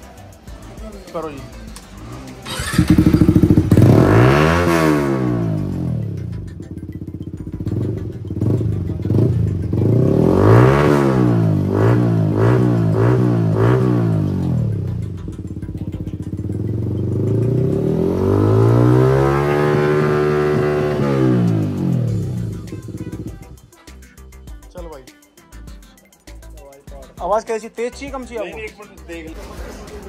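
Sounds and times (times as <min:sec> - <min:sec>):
motorcycle engine revving: 0:00.0 - 0:23.7.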